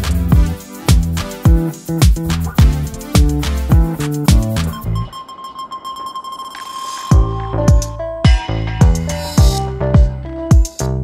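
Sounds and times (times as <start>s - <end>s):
deep kick drum beat: 0.0s - 5.0s, 7.1s - 10.8s
held synth tone: 4.6s - 9.8s.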